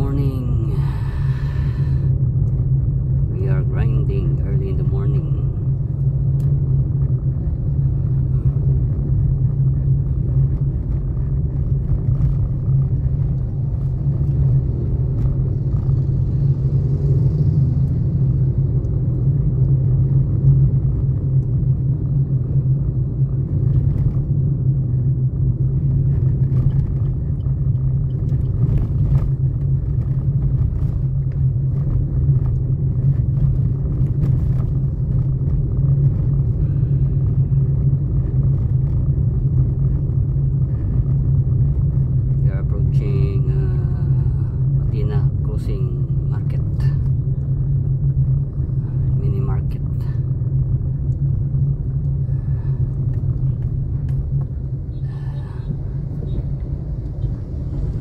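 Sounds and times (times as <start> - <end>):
road noise: 0.0 - 58.0
vehicle engine drone: 0.0 - 58.0.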